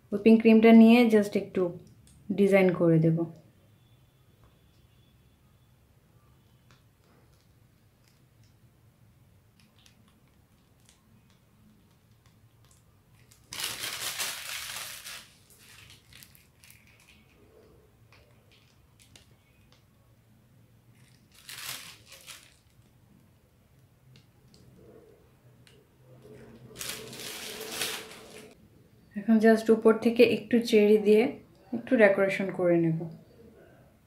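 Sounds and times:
plastic piping bag crinkling: 0:09.5 - 0:19.9, 0:20.9 - 0:24.7, 0:26.2 - 0:28.6.

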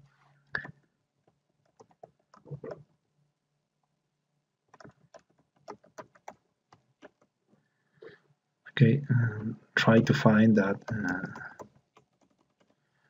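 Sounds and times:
computer keys clicking: 0:01.6 - 0:02.8, 0:04.7 - 0:07.3, 0:10.7 - 0:12.8.

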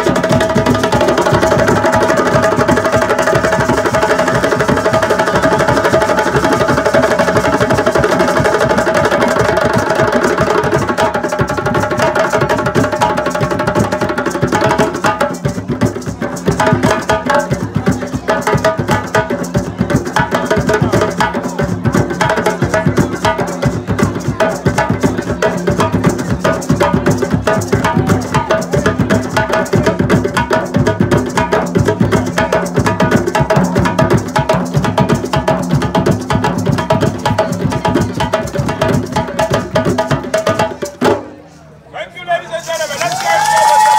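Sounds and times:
hand drums playing: 0:00.0 - 0:41.3.

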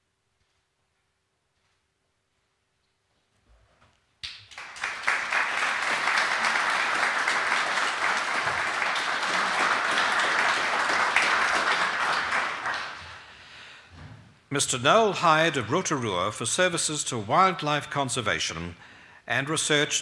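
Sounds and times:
audience applauding: 0:04.2 - 0:13.4.

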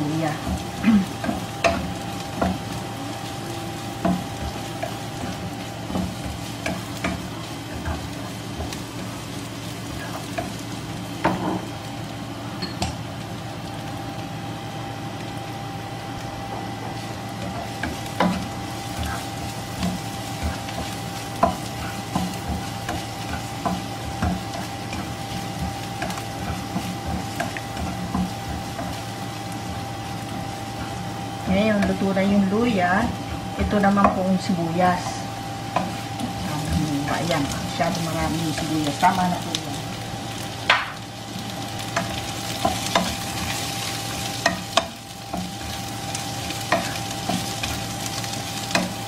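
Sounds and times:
food sizzling in oil: 0:00.0 - 0:49.0
spatula tapping pan: 0:00.4 - 0:02.8, 0:03.9 - 0:09.1, 0:16.9 - 0:31.1, 0:35.7 - 0:36.4, 0:41.8 - 0:49.0
spatula scraping pan: 0:16.9 - 0:32.1, 0:41.4 - 0:49.0.

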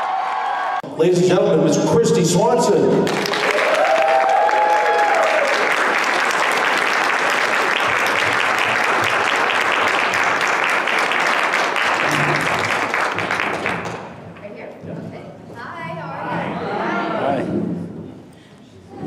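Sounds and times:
audience applauding: 0:03.0 - 0:14.2.

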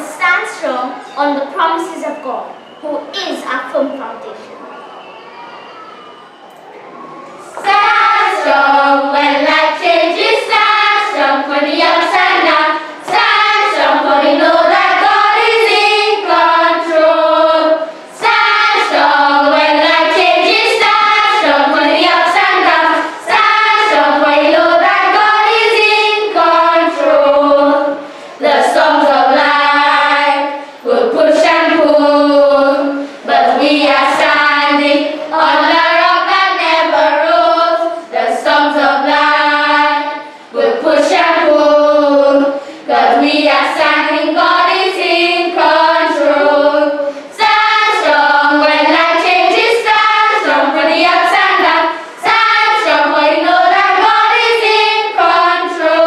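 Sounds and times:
children singing: 0:04.9 - 0:56.0.

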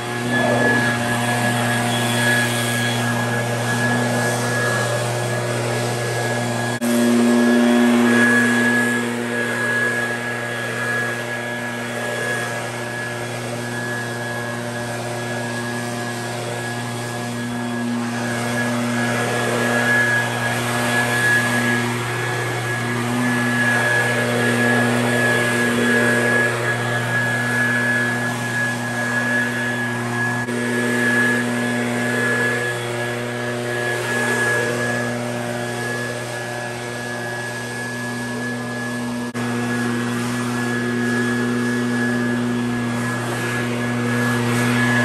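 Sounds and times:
leaf blower running: 0:00.0 - 0:45.0.

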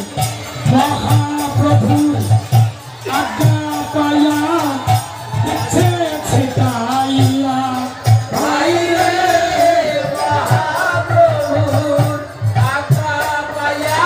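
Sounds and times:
jingling percussion: 0:00.0 - 0:14.0
steady drum beat: 0:00.0 - 0:14.0
devotional singing: 0:03.0 - 0:14.0.

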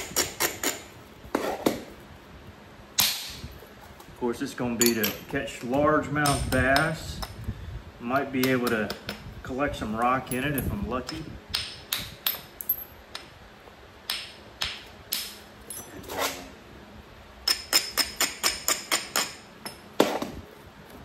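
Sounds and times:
copper tool tapping stone: 0:06.2 - 0:07.4.

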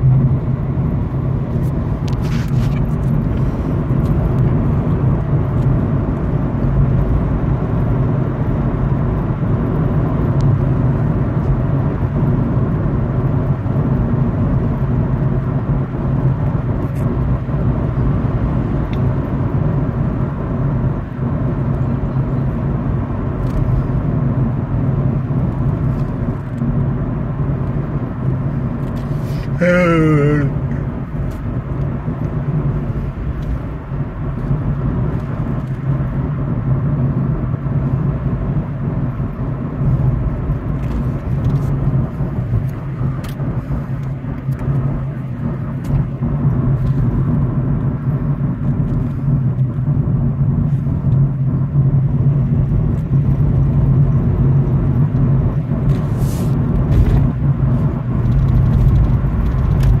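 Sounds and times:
car engine hum: 0:00.0 - 1:00.0
tyre and road rumble: 0:00.0 - 1:00.0.

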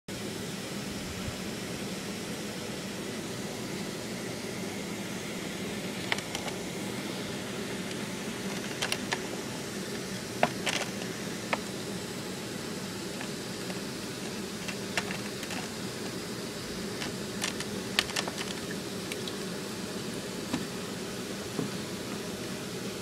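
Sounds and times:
mechanical hum with hiss: 0:00.1 - 0:23.0.

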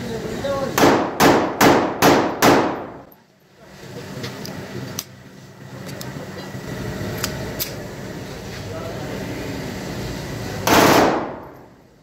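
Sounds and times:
pistol shots echoing: 0:00.8 - 0:03.0, 0:10.7 - 0:11.4.

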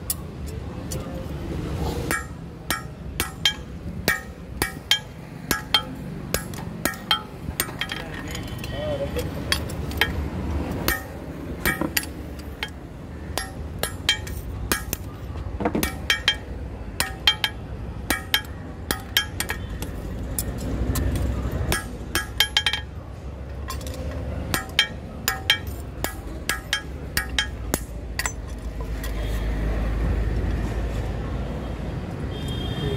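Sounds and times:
hammer striking metal on anvil: 0:02.1 - 0:08.0, 0:09.5 - 0:10.2, 0:10.8 - 0:15.1, 0:15.7 - 0:23.0, 0:23.6 - 0:29.2.

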